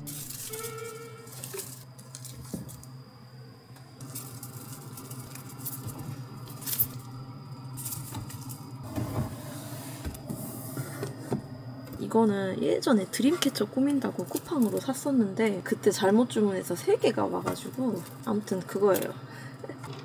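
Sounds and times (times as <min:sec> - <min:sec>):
plastic leaves rustling: 0:00.0 - 0:02.9, 0:04.0 - 0:07.1
steady low hum: 0:01.0 - 0:20.0.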